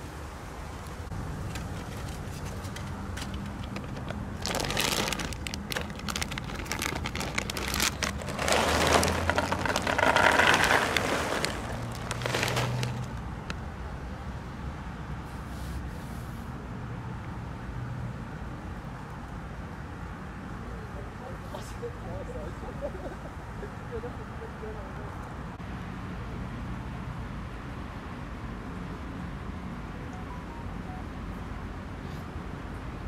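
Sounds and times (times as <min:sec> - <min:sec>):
plastic bag crinkling: 0:03.3 - 0:13.3
dry kibble pouring onto tray: 0:04.4 - 0:13.2.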